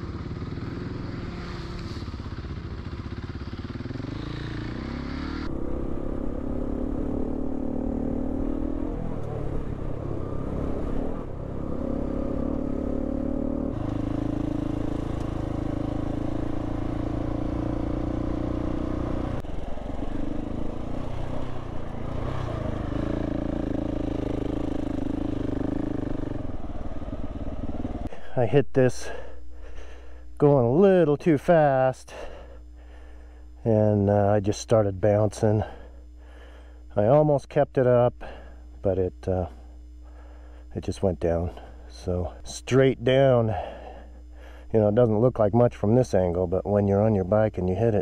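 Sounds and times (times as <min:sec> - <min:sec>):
motorcycle engine running: 0:00.0 - 0:37.2.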